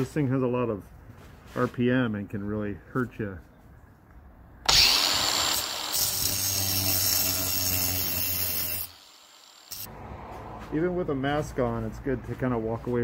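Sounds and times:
angle grinder cutting brick: 4.7 - 9.9.

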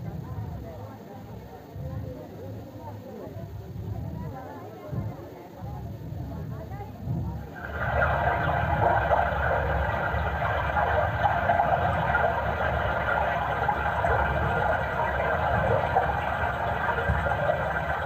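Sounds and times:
water gurgling into a pot: 7.4 - 18.0.

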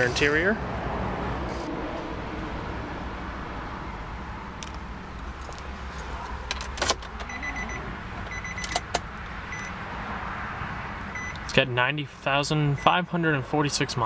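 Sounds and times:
dashboard warning chime beeping: 7.2 - 8.8, 9.5 - 9.8, 11.1 - 11.4, 12.7 - 13.1.

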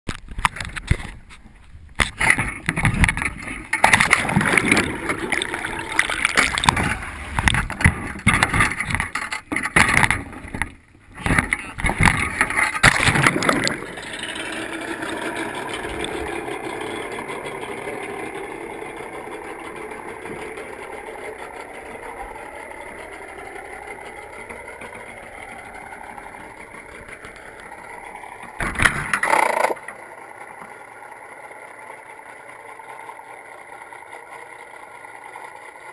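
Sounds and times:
boat motor drone underwater: 0.2 - 35.9
water splashing: 2.0 - 16.7
muffled underwater sound: 2.1 - 9.1, 9.8 - 14.1
knocking and rustling: 6.0 - 13.8.

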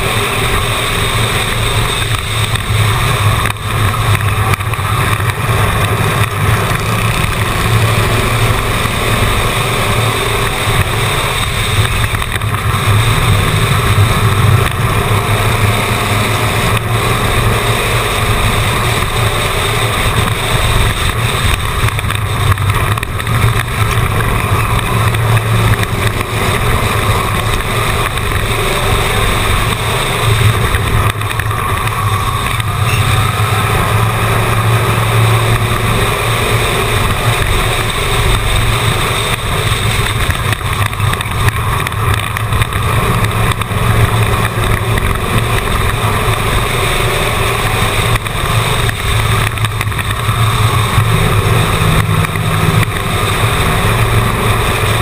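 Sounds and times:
race car engine roaring: 0.0 - 55.0.

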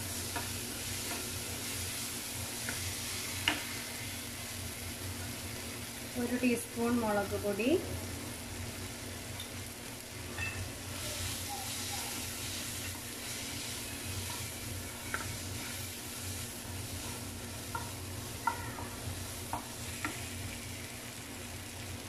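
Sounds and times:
food sizzling in oil: 0.0 - 22.0
spatula tapping and scraping pan: 0.3 - 1.3, 3.4 - 3.8, 12.8 - 15.9, 16.9 - 20.3.

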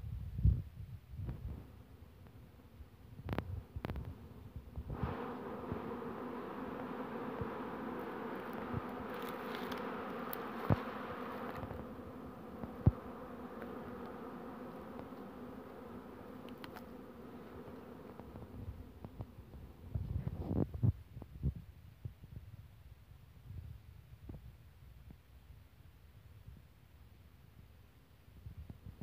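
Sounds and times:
honeybees buzzing: 1.5 - 20.0.

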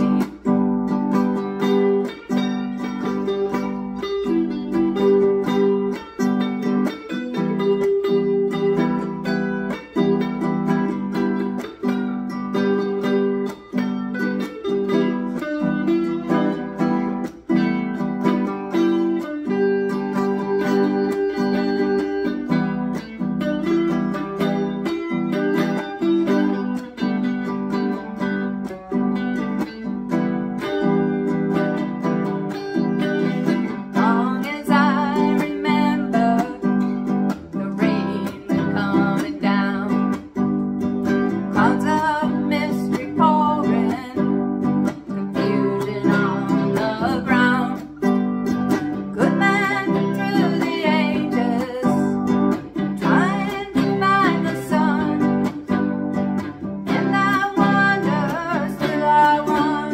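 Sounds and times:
electric guitar through amplifier: 0.0 - 59.9
ukulele strumming: 0.0 - 59.9
woman singing: 32.8 - 56.0, 56.6 - 59.9.

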